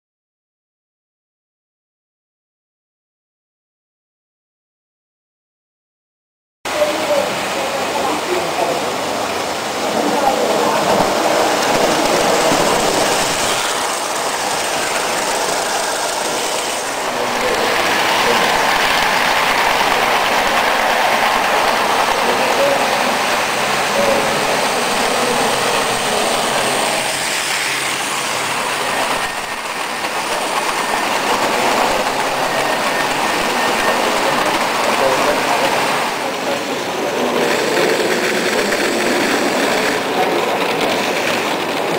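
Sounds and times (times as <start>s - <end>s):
toy train wheels rattling on rails: 10.6s - 41.9s.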